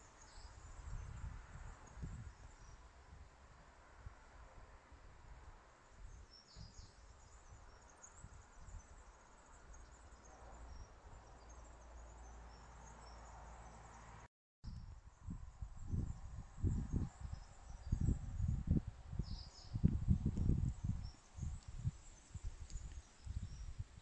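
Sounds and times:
wind rumble on microphone: 0.0s - 14.0s, 14.6s - 24.0s
low buffets on microphone: 0.3s - 3.3s, 14.7s - 24.0s.

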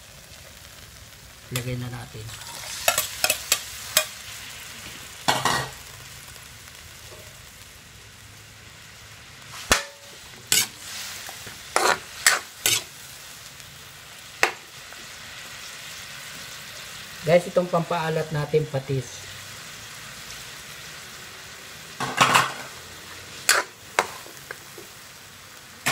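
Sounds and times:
chicken sizzling in a wok: 0.0s - 25.9s
metal spatula scraping a wok: 2.3s - 4.4s, 9.5s - 13.0s, 22.0s - 24.3s.

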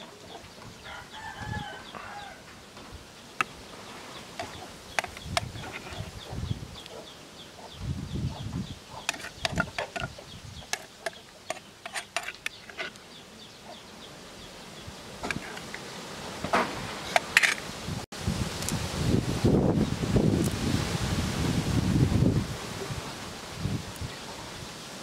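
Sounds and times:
spoon mixing salad in a bowl: 9.0s - 12.9s.

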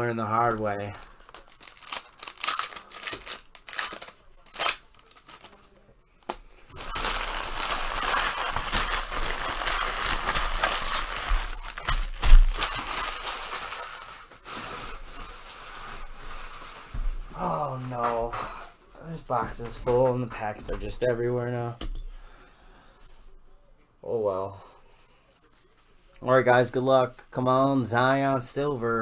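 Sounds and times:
packaging crinkling and tearing: 0.3s - 5.8s, 6.7s - 16.8s
packaging clicks and rustles: 0.4s - 14.4s
sharp crackle: 6.7s - 14.3s.

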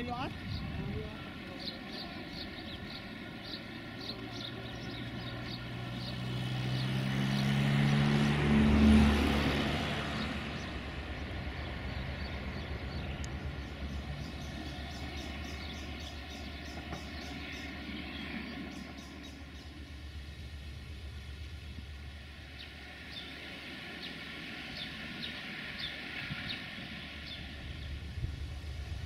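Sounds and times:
vehicle engine passing by: 0.0s - 29.0s.

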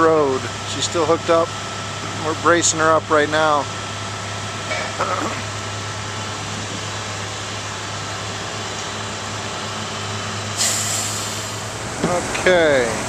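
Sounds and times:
diesel engine running: 0.0s - 13.0s
air brake hiss: 10.6s - 11.7s.

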